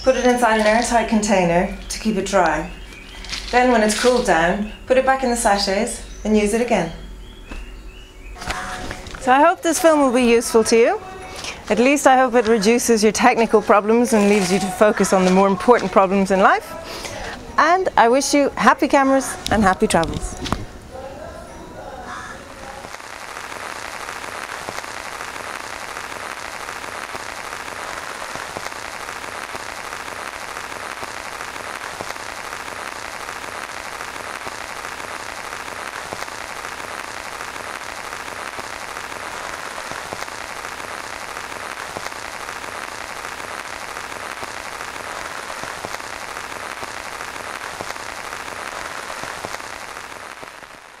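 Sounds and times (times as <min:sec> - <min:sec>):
heavy rain falling: 0:22.8 - 0:51.0.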